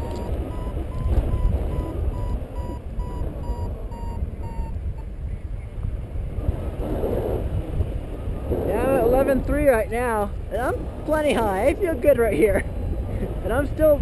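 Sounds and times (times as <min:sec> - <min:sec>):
variometer high beeps: 0:00.0 - 0:05.1
wind on microphone: 0:00.0 - 0:14.0.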